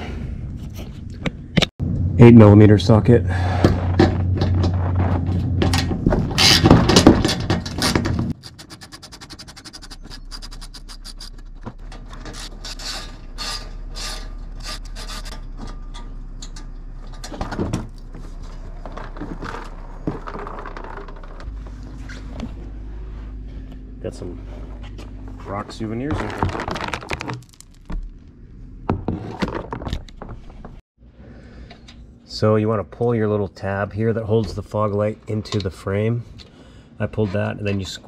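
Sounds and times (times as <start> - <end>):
plastic shield scraping: 3.4 - 15.7, 17.2 - 23.4, 24.4 - 28.2, 28.8 - 30.8.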